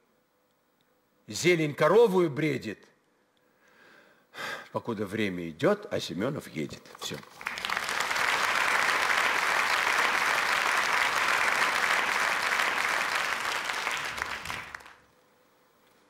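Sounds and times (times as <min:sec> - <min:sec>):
audience applauding: 0:07.1 - 0:15.1.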